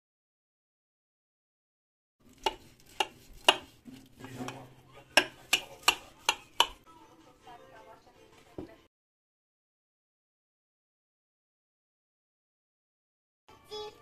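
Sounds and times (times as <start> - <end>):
spatula scraping: 2.2 - 6.9.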